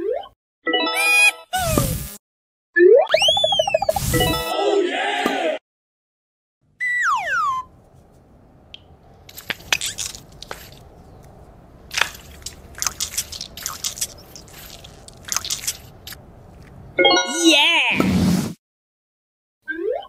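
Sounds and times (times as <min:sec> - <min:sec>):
cartoon falling whistle: 0:03.0 - 0:04.4, 0:06.8 - 0:07.7
stress balls squelching: 0:07.7 - 0:16.9.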